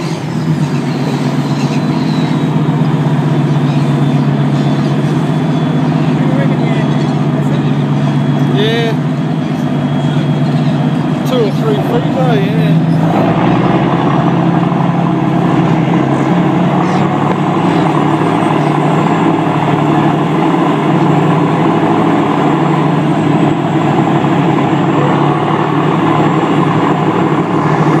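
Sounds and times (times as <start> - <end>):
diesel engine humming: 0.0 - 28.0.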